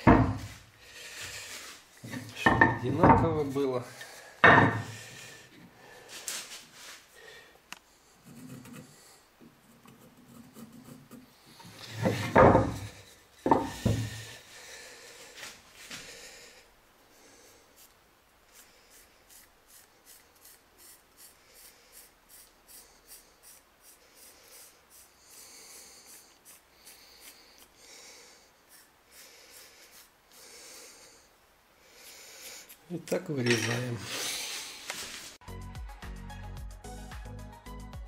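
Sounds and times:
wooden pieces knocking: 4.4s - 4.9s, 12.0s - 14.2s
pencil scratching on wood: 8.1s - 13.1s, 17.8s - 27.7s, 28.7s - 30.4s.

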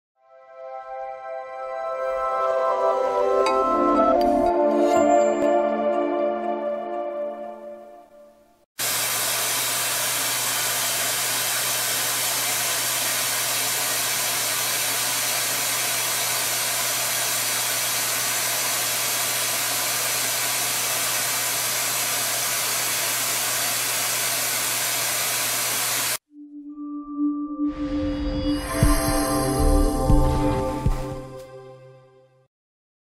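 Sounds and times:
air rushing through nozzle: 8.8s - 26.2s.

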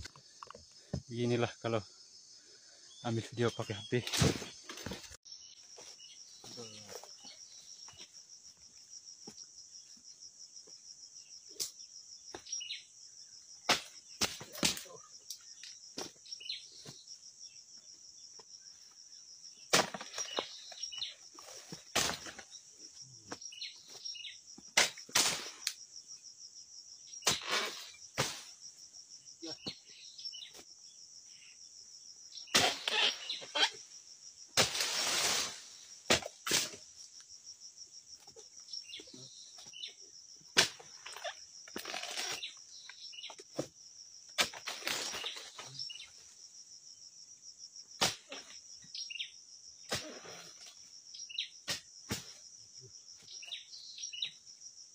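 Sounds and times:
insects buzzing: 0.0s - 54.9s.

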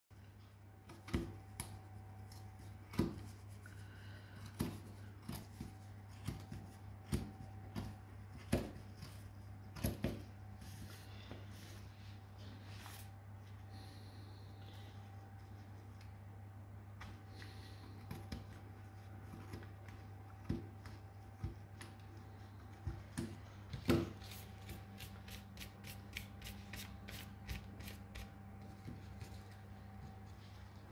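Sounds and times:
steady low hum: 0.1s - 30.9s
soft rustling: 28.5s - 30.9s.

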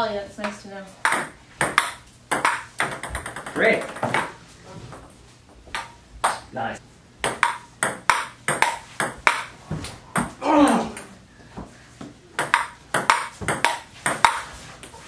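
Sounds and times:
table tennis ball clicking: 1.0s - 4.3s, 7.2s - 9.5s, 12.4s - 14.5s.

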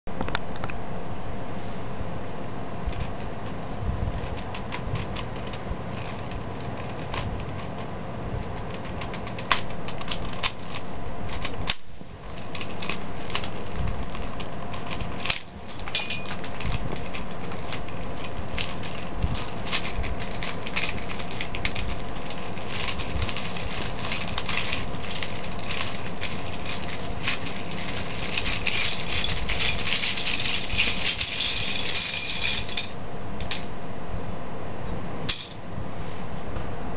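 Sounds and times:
loose plastic pieces rattling: 4.1s - 33.7s.

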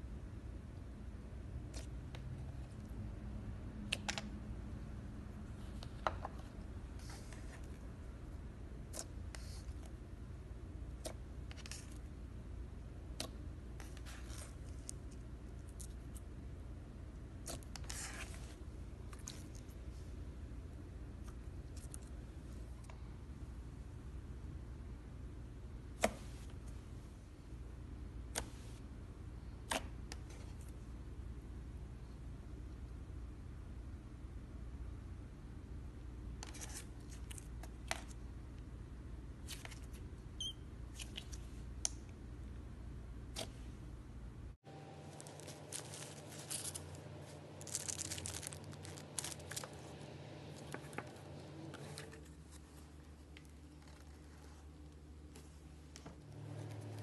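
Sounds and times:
low steady hum: 0.0s - 57.0s
plastic packaging crinkling: 45.1s - 50.0s.

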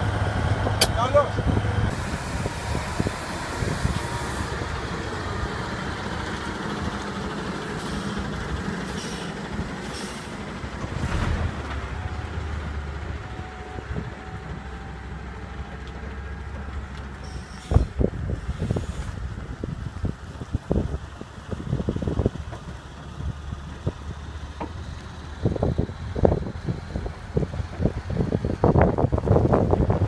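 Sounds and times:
diesel engine rumbling: 0.0s - 30.0s
air hissing: 1.9s - 4.6s, 8.9s - 10.4s.

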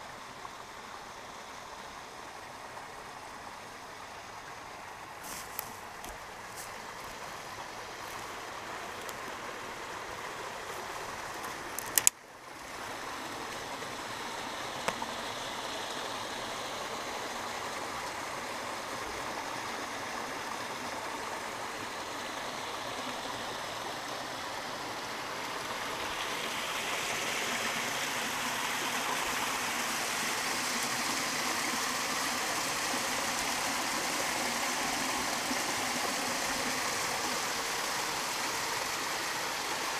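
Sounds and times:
creek trickling over small waterfall: 0.0s - 39.9s
sharp clicks: 11.8s - 12.2s.

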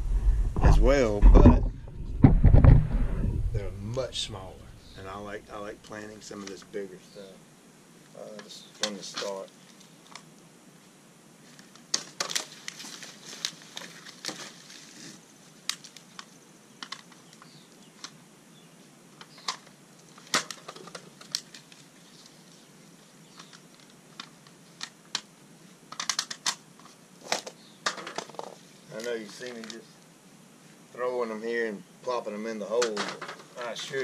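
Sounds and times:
plastic pots crackling and clicking: 8.2s - 10.3s, 11.5s - 14.9s, 15.6s - 18.2s, 19.2s - 22.4s, 23.3s - 25.3s, 25.9s - 29.8s, 32.7s - 34.0s.

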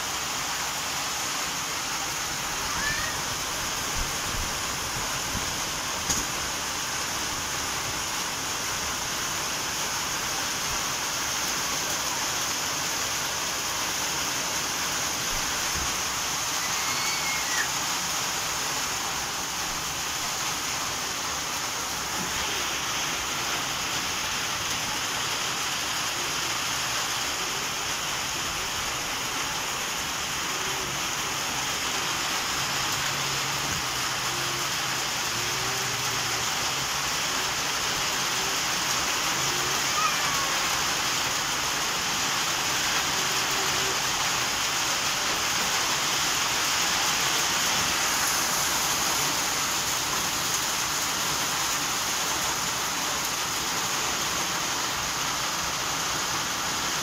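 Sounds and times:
rain falling: 0.0s - 57.0s.

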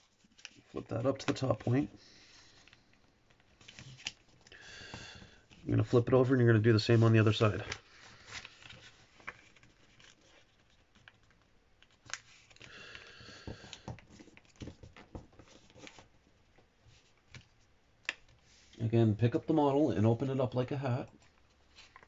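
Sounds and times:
paper rustling and crinkling: 0.0s - 1.9s, 2.5s - 4.5s, 6.8s - 12.7s, 13.7s - 16.1s, 21.2s - 22.0s.

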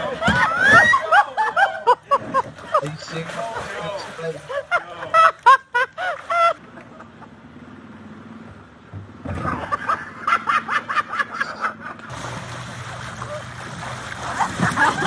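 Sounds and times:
people laughing: 0.0s - 7.5s, 9.3s - 12.1s, 14.2s - 15.0s
low hum: 6.0s - 15.0s.

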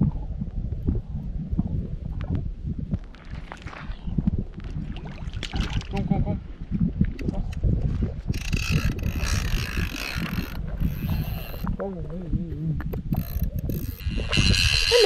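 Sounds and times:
fishing reel ratcheting: 8.3s - 11.8s, 13.1s - 15.0s.

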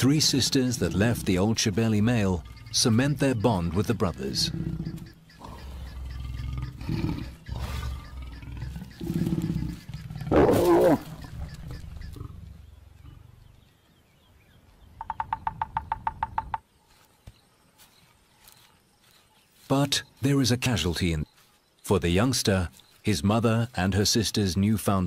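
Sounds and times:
lions growling and snarling: 4.1s - 13.6s.

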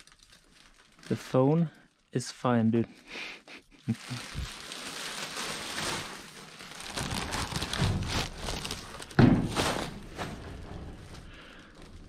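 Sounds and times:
plastic bags rustling: 0.0s - 2.6s, 3.7s - 12.0s
loud thump: 9.2s - 9.8s.

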